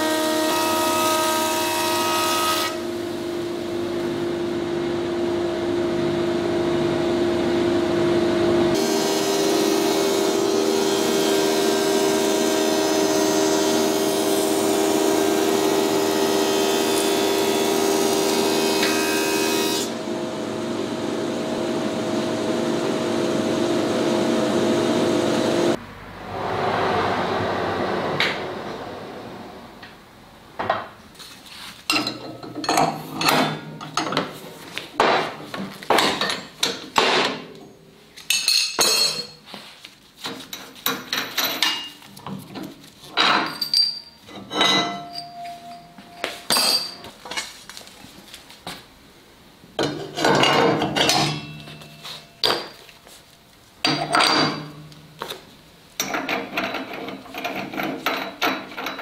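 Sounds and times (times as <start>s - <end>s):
metallic clanks and clinks: 31.9s - 34.2s, 38.3s - 39.4s, 43.2s - 47.4s, 49.8s - 52.8s, 53.8s - 54.8s.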